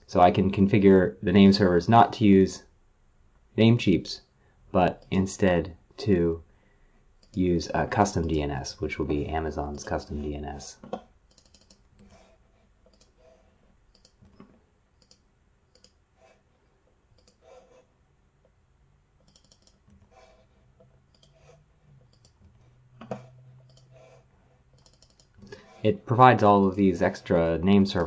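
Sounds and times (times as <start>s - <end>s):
mouse and keyboard clicks: 10.8s - 12.2s, 12.8s - 13.3s, 13.9s - 16.0s, 17.2s - 17.7s, 19.2s - 25.6s.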